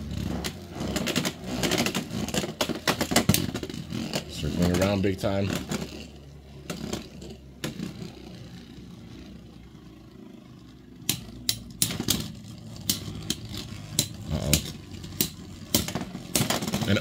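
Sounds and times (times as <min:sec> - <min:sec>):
spinning tops whirring: 0:00.0 - 0:17.0
tops clacking together: 0:11.0 - 0:17.0.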